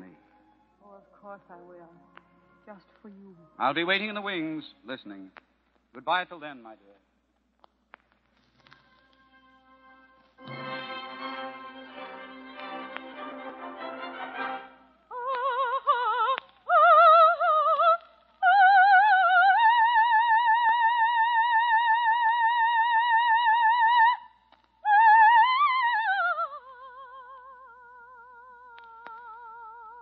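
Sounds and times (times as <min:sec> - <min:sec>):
operatic soprano singing: 0:12.9 - 0:30.0.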